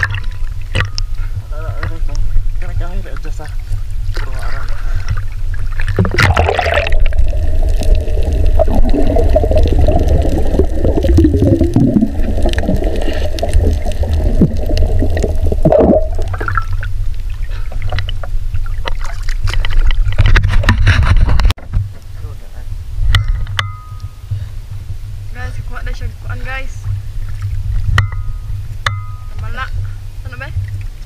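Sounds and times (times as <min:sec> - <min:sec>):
sea water sloshing and gurgling: 0:00.0 - 0:21.6, 0:26.5 - 0:31.0
low rumble: 0:00.0 - 0:31.0
wavering hum: 0:22.9 - 0:31.0.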